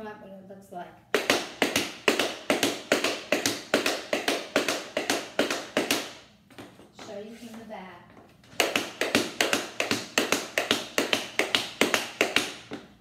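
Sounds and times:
tap shoes tapping on board: 1.2 - 7.2, 8.5 - 12.9.

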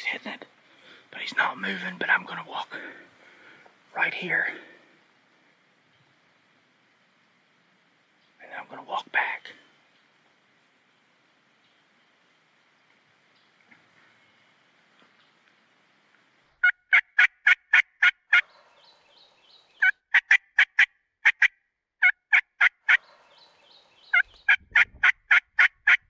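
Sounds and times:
turkey call yelps: 16.6 - 18.5, 19.8 - 23.0
distant turkey gobbling: 16.6 - 18.9, 19.8 - 26.0.

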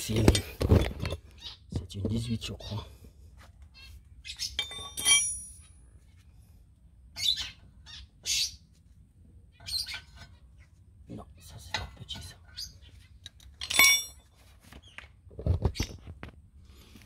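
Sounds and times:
metal wrench clinking on steel: 4.6 - 5.7, 13.2 - 14.2.

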